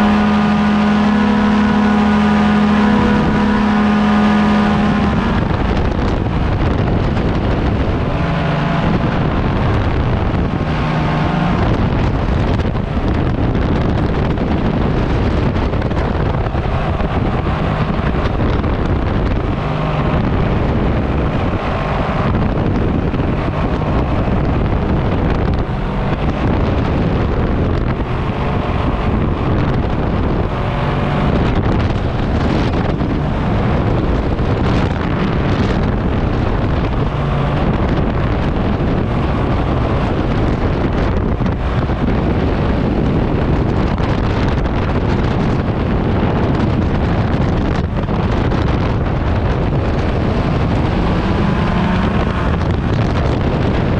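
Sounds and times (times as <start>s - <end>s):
paramotor engine and propeller: 0.0s - 53.9s
wind buffeting microphone: 0.0s - 53.9s.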